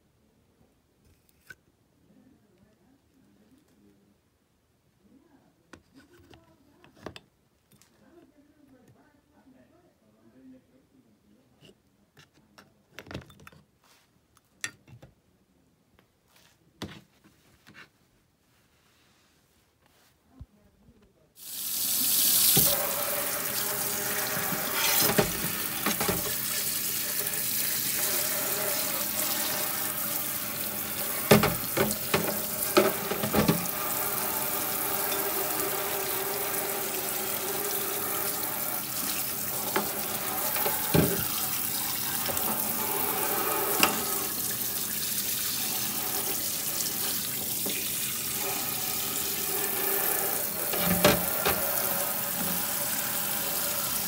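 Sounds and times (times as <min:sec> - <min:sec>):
tap running into metal sink: 0:22.4 - 0:26.7, 0:27.9 - 0:44.6, 0:46.1 - 0:54.0.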